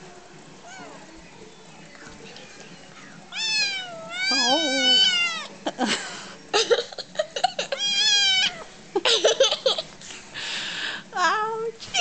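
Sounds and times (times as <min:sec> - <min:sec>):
kitten meowing: 0:03.3 - 0:05.5, 0:07.8 - 0:08.6
woman laughing: 0:05.6 - 0:07.8, 0:09.0 - 0:10.0.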